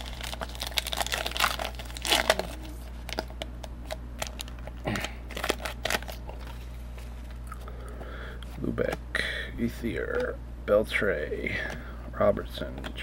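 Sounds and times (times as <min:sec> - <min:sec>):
plastic wrapper crinkling and tearing: 0:00.0 - 0:06.7.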